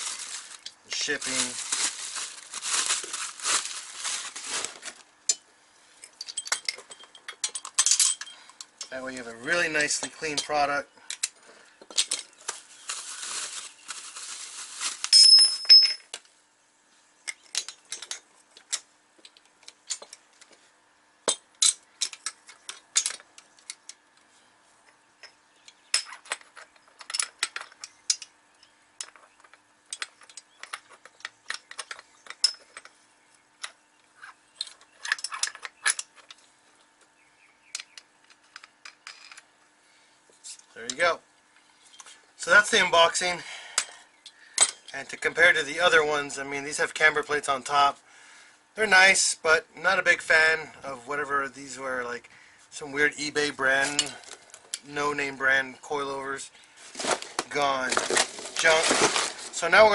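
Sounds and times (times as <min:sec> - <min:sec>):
rustle: 0:00.0 - 0:05.1, 0:12.0 - 0:16.3
steel parts clinking together: 0:06.2 - 0:08.9, 0:15.1 - 0:16.2.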